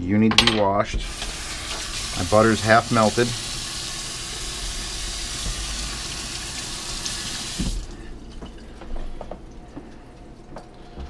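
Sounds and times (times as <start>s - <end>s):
faucet knock: 0.9s - 2.0s, 5.0s - 6.6s, 7.5s - 8.5s
faucet running into steel sink: 0.9s - 11.0s.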